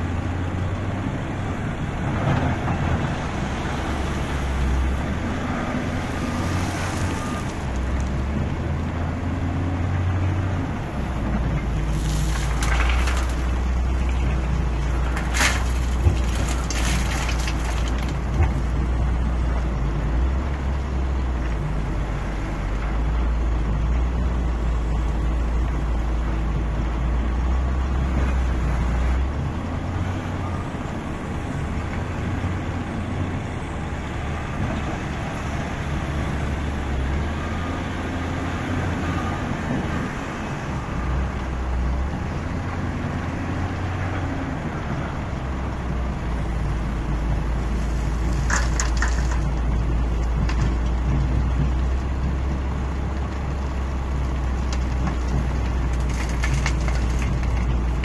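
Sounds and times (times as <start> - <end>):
wheel loader diesel engine: 0.0 - 58.0
stone spilling into truck bed: 11.8 - 13.8, 15.1 - 18.2, 48.3 - 49.5.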